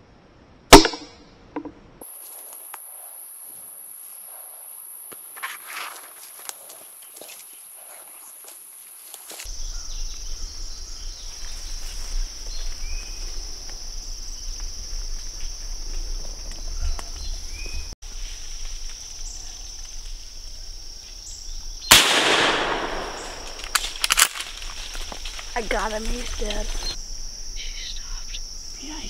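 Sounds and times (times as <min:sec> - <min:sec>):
insects droning: 0:01.2 - 0:29.0
loud gunshot with echo: 0:21.9 - 0:23.7.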